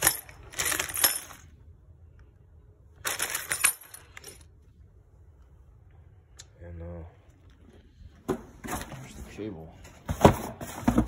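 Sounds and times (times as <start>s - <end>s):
small metal parts clinking: 0.0s - 1.5s, 3.0s - 4.5s.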